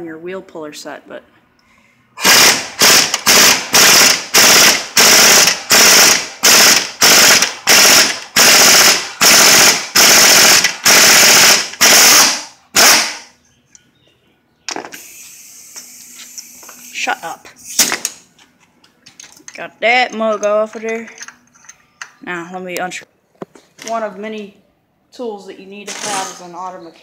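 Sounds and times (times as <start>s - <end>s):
air impact wrench hammering: 2.2s - 13.3s, 14.7s - 16.9s
steady air hiss: 14.9s - 17.9s.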